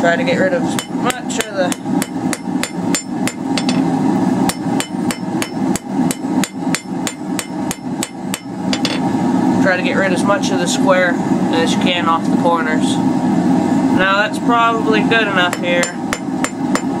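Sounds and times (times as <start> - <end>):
hammer striking steel bar on anvil: 0.8 - 3.9, 4.5 - 9.0, 15.5 - 17.0.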